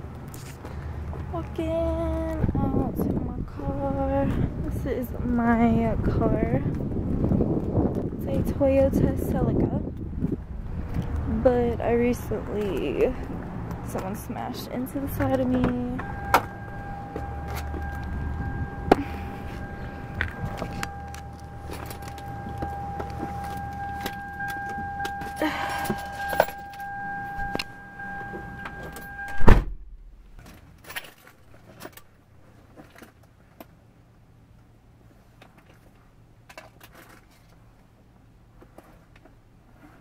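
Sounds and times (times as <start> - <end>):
car door warning buzzer: 15.2 - 29.8
car door slamming: 15.5 - 30.0
keys jangling: 16.0 - 29.4.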